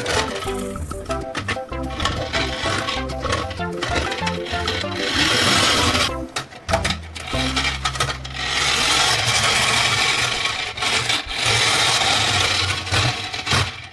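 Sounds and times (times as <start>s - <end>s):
toy car wheels rolling on wood: 0.0s - 13.9s
sharp clicks and knocks: 6.3s - 8.3s.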